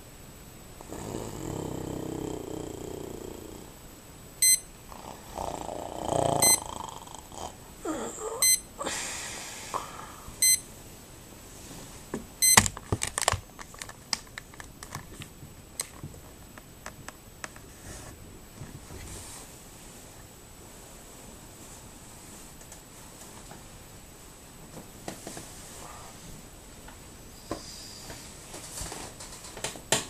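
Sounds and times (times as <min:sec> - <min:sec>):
alarm beeping: 0:04.4 - 0:04.7, 0:06.4 - 0:06.7, 0:08.4 - 0:08.7, 0:10.4 - 0:10.7
clicks and rustles: 0:12.6 - 0:17.7, 0:28.5 - 0:30.0.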